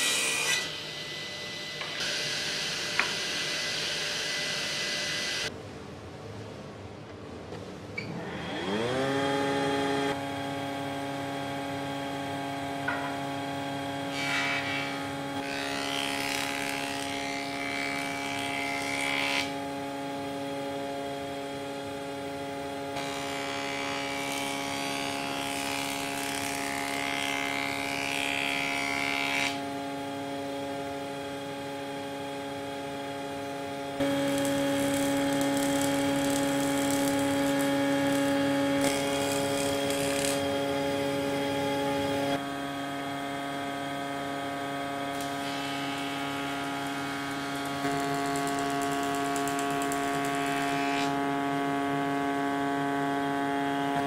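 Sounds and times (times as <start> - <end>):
planer cutting board: 0.0 - 5.4, 12.8 - 13.4, 14.0 - 19.6, 34.0 - 42.4, 45.1 - 51.3
planer motor humming: 29.9 - 44.2.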